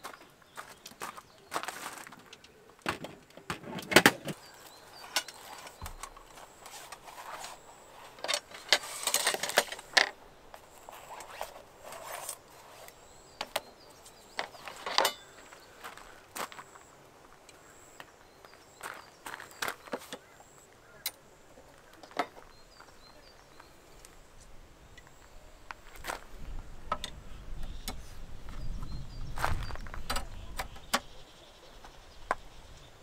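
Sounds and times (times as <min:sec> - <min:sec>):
gear rustling: 0:04.2 - 0:13.1.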